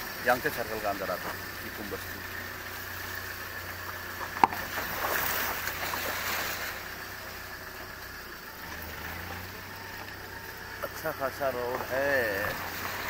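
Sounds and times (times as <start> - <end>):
rough road noise: 0.0 - 13.0
vehicle engine hum: 0.0 - 13.0.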